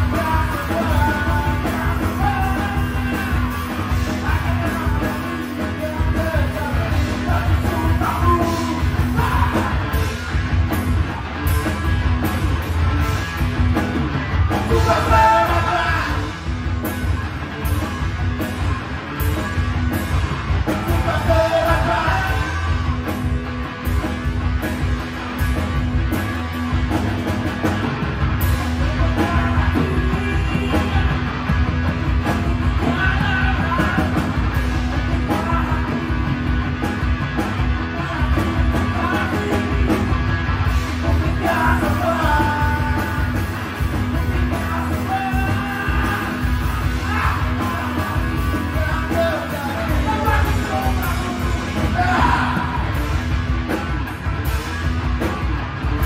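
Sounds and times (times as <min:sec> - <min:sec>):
man singing: 0:00.0 - 0:10.3, 0:14.6 - 0:16.4, 0:20.8 - 0:22.8, 0:28.6 - 0:31.6, 0:32.5 - 0:36.6, 0:37.7 - 0:40.3, 0:41.0 - 0:53.2
bass guitar: 0:00.0 - 0:56.0
drums: 0:00.0 - 0:56.0
electric guitar: 0:00.0 - 0:56.0.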